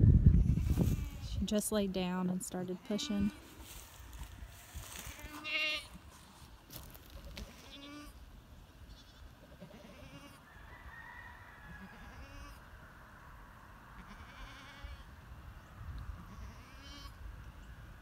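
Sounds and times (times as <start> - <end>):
goats bleating: 4.9 - 6.0, 7.3 - 8.2.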